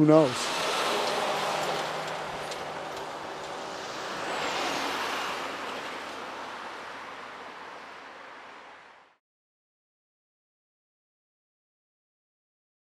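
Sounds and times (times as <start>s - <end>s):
vehicle driving past: 0.1s - 9.2s.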